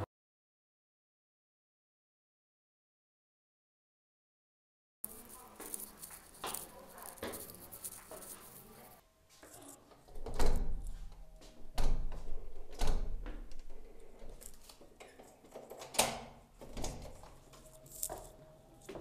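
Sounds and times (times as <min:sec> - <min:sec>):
locked door thudding and rattling: 0:10.2 - 0:10.8, 0:11.7 - 0:13.8.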